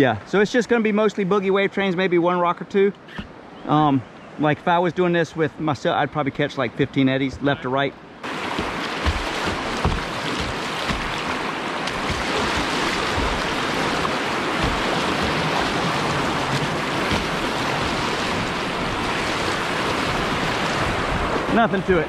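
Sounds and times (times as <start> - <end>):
river rapid rushing: 7.5 - 22.0.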